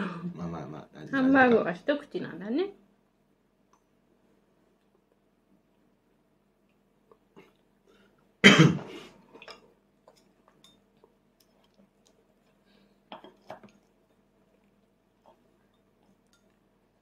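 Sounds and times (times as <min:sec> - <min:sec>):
loud cough: 0:08.4 - 0:08.9.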